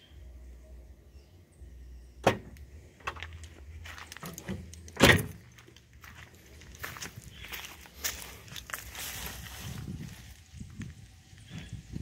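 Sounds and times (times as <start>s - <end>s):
trunk lid thump: 2.2s - 2.6s, 4.2s - 5.4s
trunk latch click: 2.2s - 3.2s, 4.2s - 5.4s.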